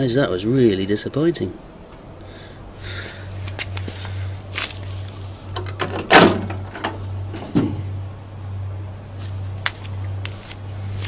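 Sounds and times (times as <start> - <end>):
steady low hum: 0.0 - 11.0
microwave door clunk: 5.6 - 7.8.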